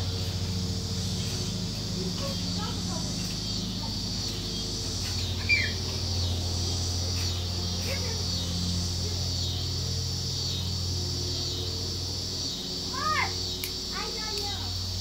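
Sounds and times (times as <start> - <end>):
insect drone: 0.0 - 15.0
low steady hum: 0.0 - 15.0
high descending chirp: 1.2 - 9.8.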